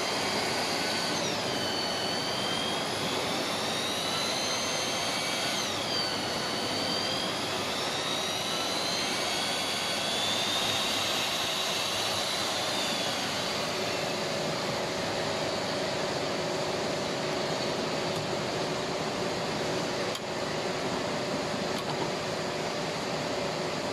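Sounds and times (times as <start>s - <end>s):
pipe planer motor whining: 0.0s - 16.0s.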